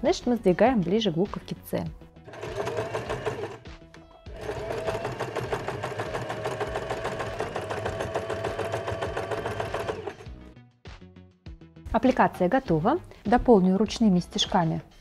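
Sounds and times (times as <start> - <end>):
sewing machine stitching: 2.3 - 3.6, 4.3 - 10.3.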